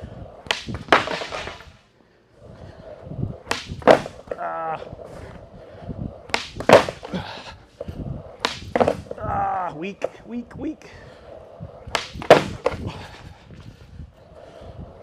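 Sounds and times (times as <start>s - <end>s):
skateboard tail popping: 0.0s - 1.8s, 2.6s - 10.3s, 11.2s - 15.0s
skateboard wheels rolling on concrete: 0.0s - 15.0s
skateboard slapping down: 0.4s - 1.8s, 3.4s - 4.6s, 6.2s - 7.5s, 8.3s - 10.2s, 11.8s - 13.3s.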